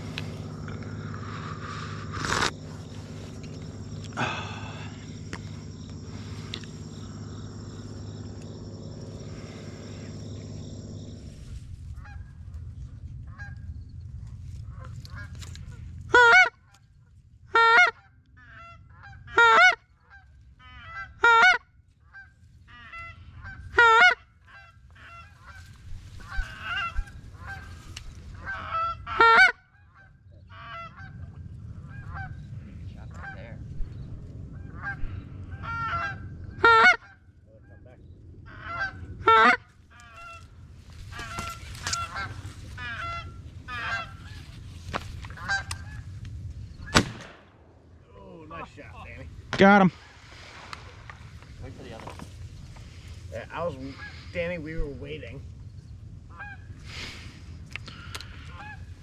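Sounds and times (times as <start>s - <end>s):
goose honking: 16.1s - 16.6s, 17.5s - 27.8s, 28.4s - 31.2s, 34.6s - 37.2s, 38.5s - 40.5s, 41.1s - 46.0s, 56.3s - 56.7s, 58.5s - 58.9s.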